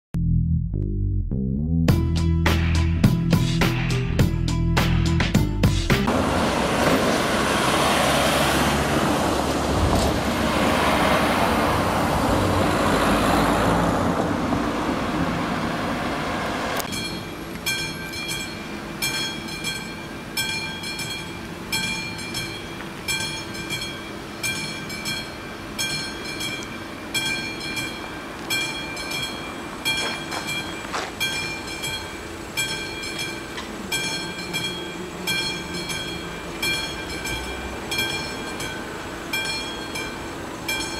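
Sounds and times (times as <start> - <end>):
loud rushing noise: 6.0 - 17.4
level-crossing warning bell ringing: 16.8 - 40.9.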